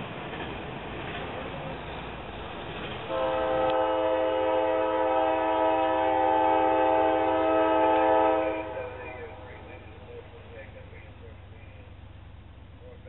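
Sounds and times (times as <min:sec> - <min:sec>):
train air horn blast: 0:03.1 - 0:09.8.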